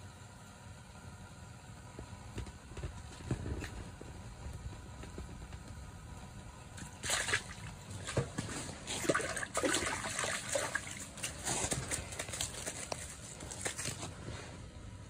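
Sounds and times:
fish splashing in water: 6.8 - 14.1.

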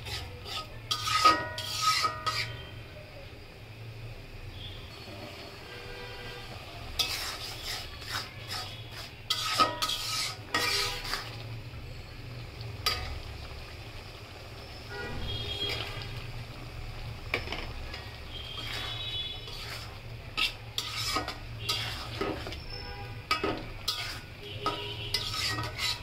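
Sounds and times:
metal spatula scraping a wok: 0.0 - 2.8, 6.3 - 11.4, 12.8 - 13.2, 17.3 - 26.0.

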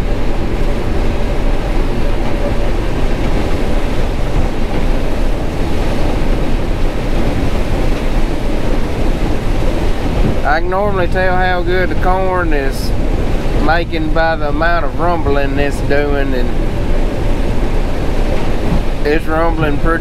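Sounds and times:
combine harvester rumbling: 0.0 - 20.0.

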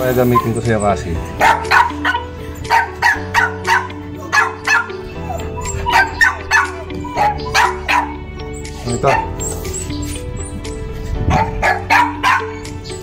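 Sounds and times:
background music with held notes: 0.0 - 13.0
dog barking: 1.4 - 8.2, 9.0 - 9.4, 11.3 - 12.6.

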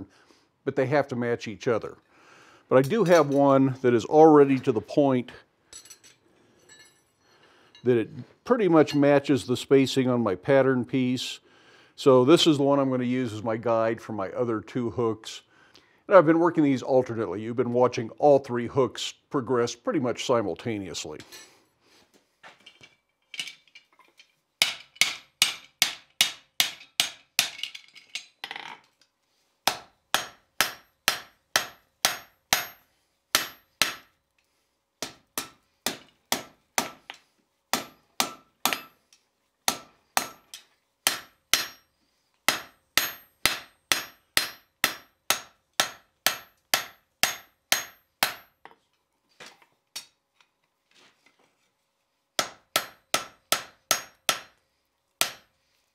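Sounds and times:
hammer striking steel on anvil: 24.6 - 27.7, 29.7 - 34.1, 35.0 - 39.0, 39.7 - 41.9, 42.5 - 48.6, 52.4 - 54.6, 55.2 - 55.5
anvil ringing: 42.5 - 48.5.

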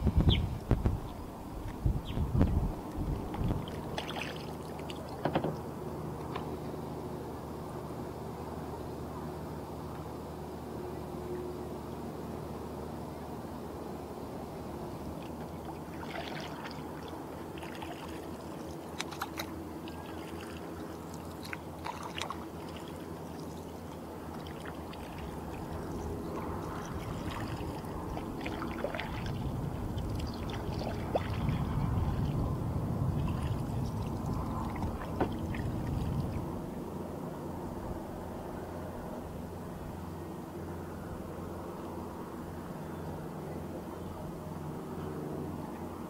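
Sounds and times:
water trickling and splashing: 1.7 - 5.7, 15.2 - 36.6
water drips: 15.2 - 32.2
low rumble: 25.0 - 36.9.

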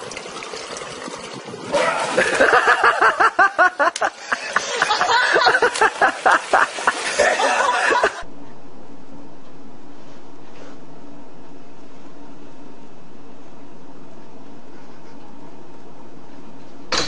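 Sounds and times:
person laughing hard: 1.8 - 8.2.

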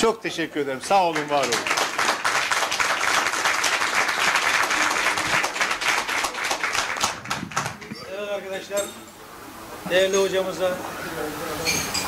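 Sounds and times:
people applauding: 1.0 - 8.0.

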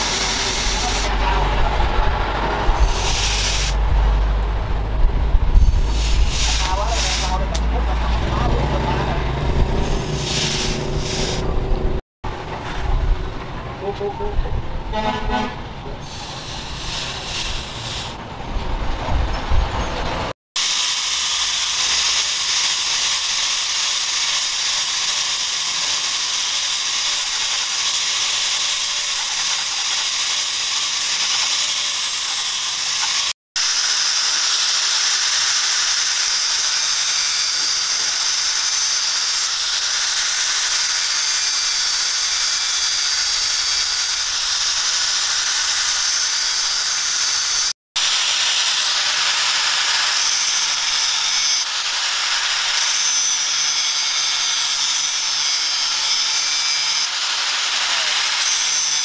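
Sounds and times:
angle grinder grinding steel: 0.0 - 3.9, 5.6 - 11.9, 16.0 - 18.2, 20.6 - 59.0.

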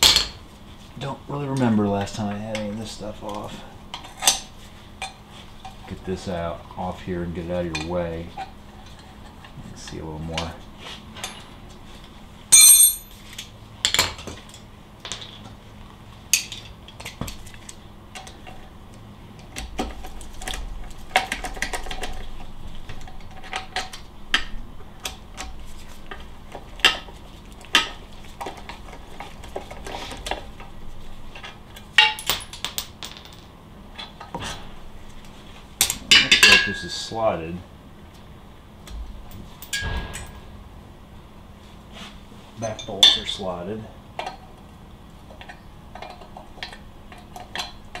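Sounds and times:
faint steady hum: 0.0 - 48.0
ringing metal clank: 12.5 - 13.2, 39.7 - 40.6
metal parts clinking and rattling: 12.5 - 13.3.

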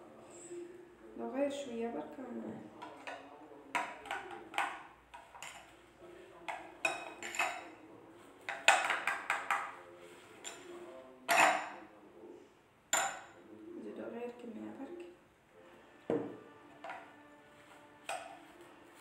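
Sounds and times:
metal spoon clinking glass bowl: 6.5 - 7.8, 11.3 - 11.8, 12.9 - 13.4, 18.1 - 18.5.

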